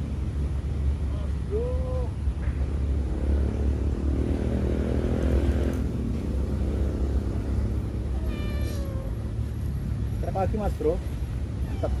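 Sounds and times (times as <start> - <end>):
vehicle engine rumbling: 0.0 - 12.0
cat meowing: 8.1 - 9.3.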